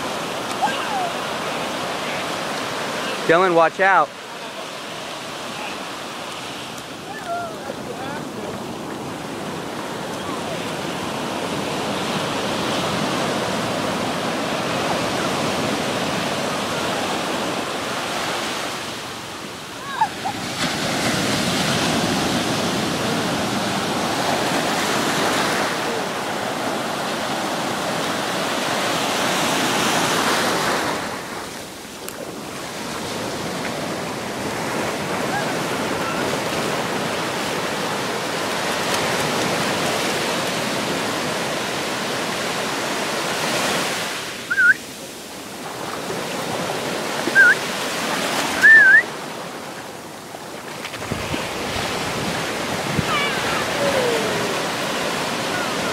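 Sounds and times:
ocean surf on sandy beach: 0:00.0 - 0:55.9
short high-pitched squeals: 0:44.5 - 0:44.8, 0:47.3 - 0:47.6, 0:48.6 - 0:49.1.

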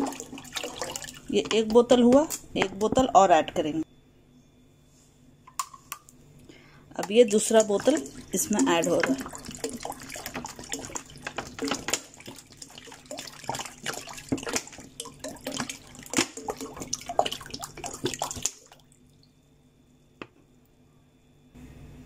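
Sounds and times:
water pouring into a pan: 0:00.0 - 0:01.7, 0:07.1 - 0:19.1.

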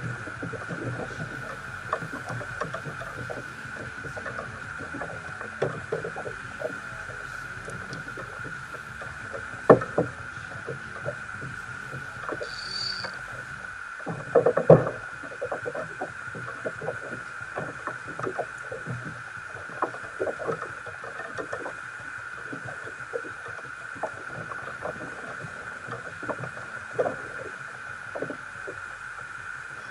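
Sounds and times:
fishing rods knocking on kayak: 0:00.0 - 0:13.5
faint high whine: 0:00.0 - 0:29.9.

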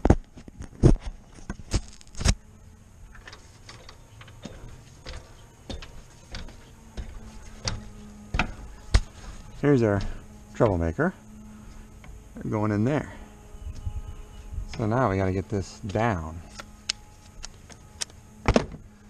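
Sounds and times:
knocks and clanks on metal ladder rungs: 0:03.2 - 0:10.8.

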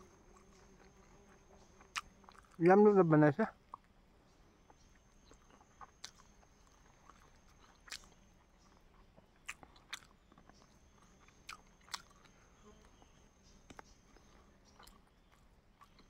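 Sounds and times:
person chewing: 0:00.3 - 0:02.6, 0:04.7 - 0:13.1, 0:14.1 - 0:16.0.

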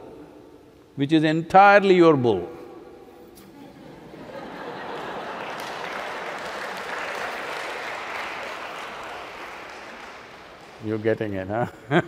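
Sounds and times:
audience applauding: 0:04.4 - 0:11.5.

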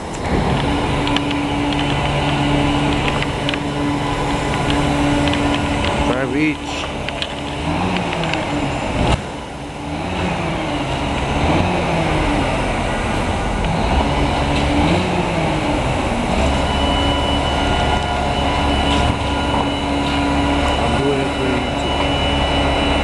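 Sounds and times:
deep rumble: 0:00.0 - 0:23.0
steady high whine: 0:00.0 - 0:23.0
truck engine revving: 0:00.0 - 0:23.0.

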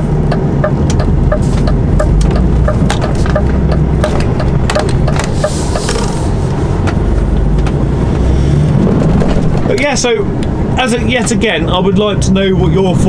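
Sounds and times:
lorry engine running: 0:00.0 - 0:13.0
indicator relay ticking: 0:00.2 - 0:06.0.

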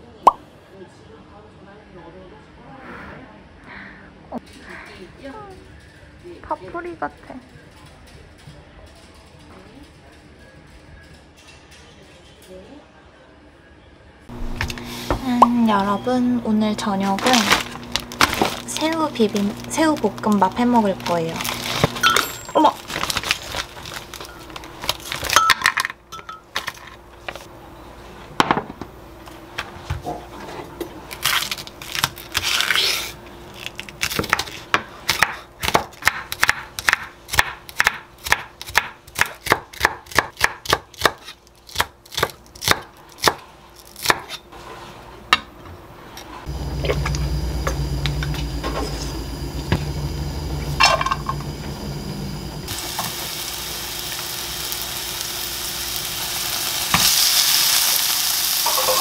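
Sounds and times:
knife chopping on wooden board: 0:34.2 - 0:43.4
steady low hum: 0:44.5 - 0:56.5.

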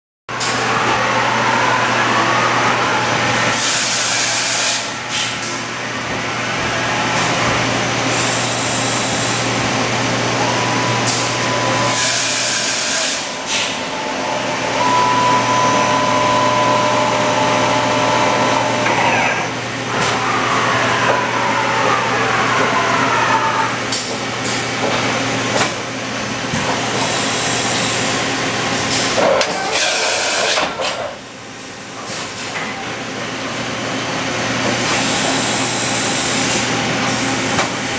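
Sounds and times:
machine hum: 0:00.3 - 0:28.8
whining machine tones: 0:04.9 - 0:23.8.

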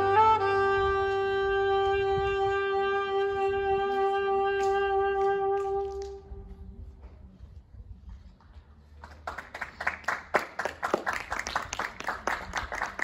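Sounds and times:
saxophone holding a long note: 0:00.0 - 0:06.4.

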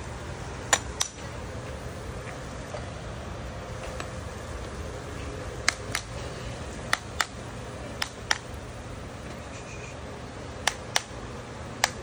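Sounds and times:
hammer tapping nails: 0:06.9 - 0:07.4, 0:08.0 - 0:08.4, 0:10.6 - 0:11.2, 0:11.8 - 0:12.0.

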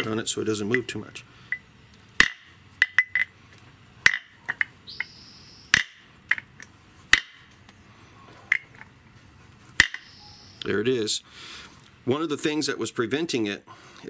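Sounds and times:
padlock striking axe head: 0:02.2 - 0:03.3, 0:04.0 - 0:04.7, 0:05.7 - 0:06.5, 0:07.1 - 0:07.5, 0:09.8 - 0:10.0.

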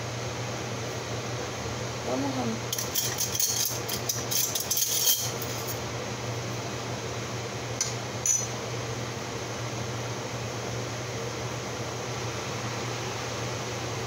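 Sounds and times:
kitchenware clinking: 0:02.7 - 0:05.8, 0:07.8 - 0:08.5.

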